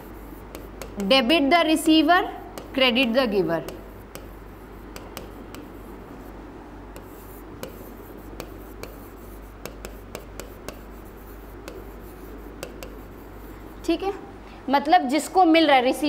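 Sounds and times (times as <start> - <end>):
stylus tapping and scratching glass: 0.0 - 1.2, 1.8 - 3.0, 3.6 - 6.2, 6.9 - 13.6.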